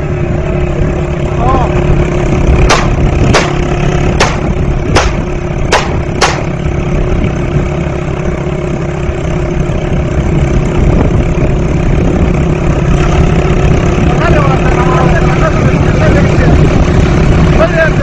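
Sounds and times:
motorcycle engine running: 0.0s - 18.0s
sharp clicks: 4.2s - 6.5s.

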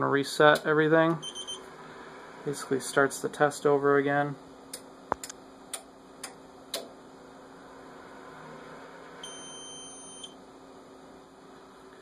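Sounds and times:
faint steady hum: 0.0s - 12.0s
high-pitched buzzer beep: 1.2s - 1.6s, 9.2s - 10.4s.

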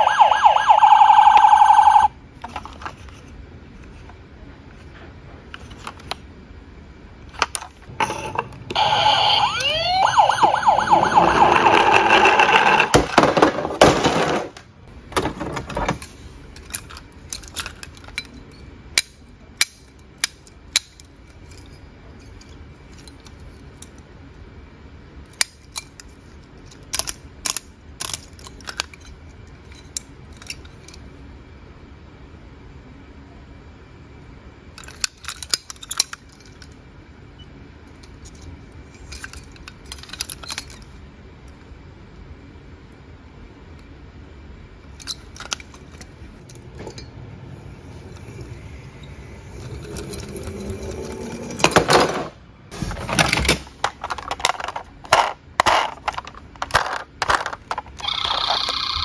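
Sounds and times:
toy siren wailing: 0.0s - 2.1s, 8.8s - 12.3s, 58.0s - 59.0s
plastic toys knocking in a box: 11.2s - 14.6s, 53.0s - 59.0s.

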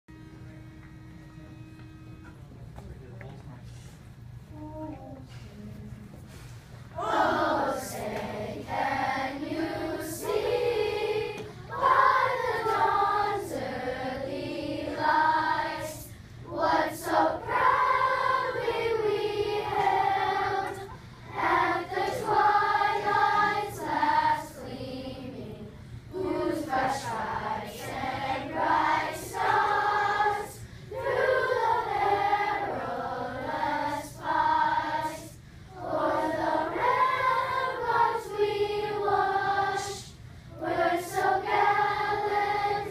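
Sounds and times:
children's choir singing: 7.0s - 42.9s.

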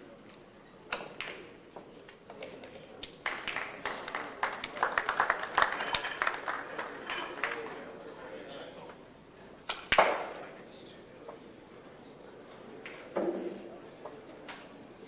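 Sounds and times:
audience applause: 3.2s - 7.8s
pool cue striking ball: 9.7s - 10.4s.

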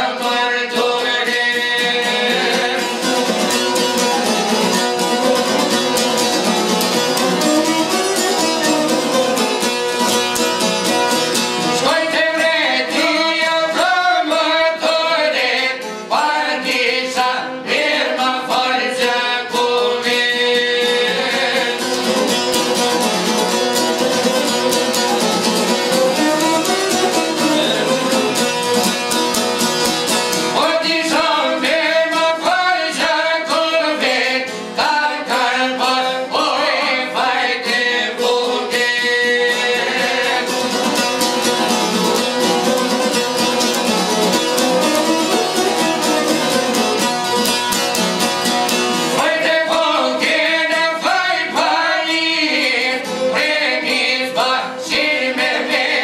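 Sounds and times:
plucked lutes: 2.0s - 11.9s, 21.6s - 31.2s, 39.6s - 50.4s
violin melody: 23.7s - 29.0s.

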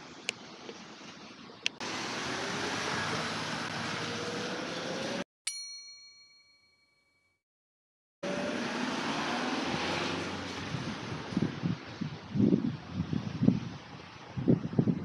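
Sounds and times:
street noise: 0.6s - 5.2s
bell-like chime: 5.5s - 7.4s
rising engine-like tone: 8.2s - 11.3s.

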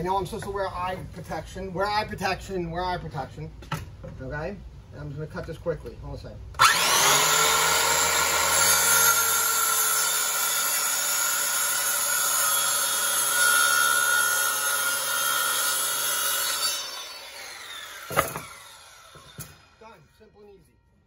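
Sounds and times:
circular saw cutting wood: 6.6s - 20.0s.

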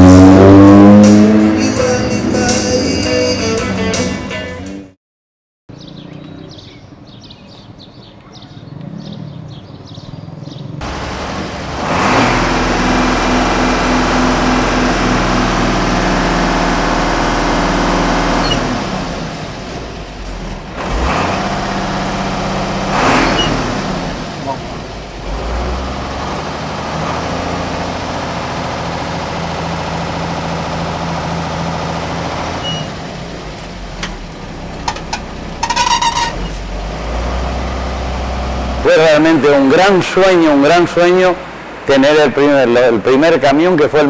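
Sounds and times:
music: 0.9s - 5.0s
truck diesel engine running: 10.8s - 43.4s.

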